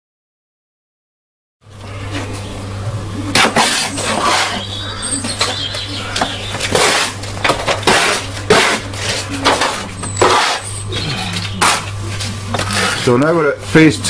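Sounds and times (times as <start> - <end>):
steady low hum: 1.6 - 14.0
trowel scraping and knocking on wall: 6.2 - 10.7.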